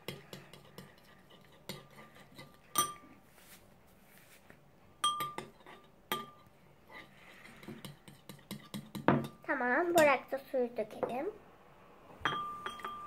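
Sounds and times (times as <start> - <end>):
spoon scraping glass bowl: 0.3 - 3.1, 5.0 - 9.4, 12.3 - 13.0
spoon clinking with ring: 2.8 - 3.0, 5.0 - 5.5, 12.2 - 13.0.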